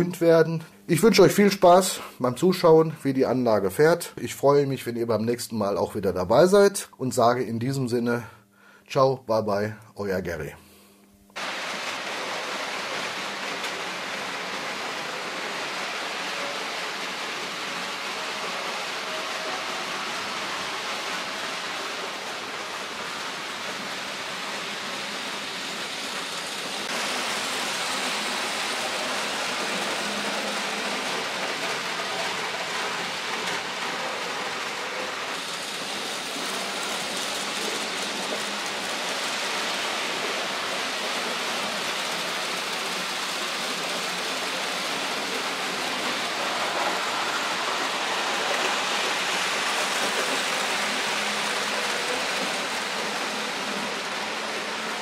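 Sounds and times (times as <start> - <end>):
model trains rumbling on track: 11.4 - 55.0.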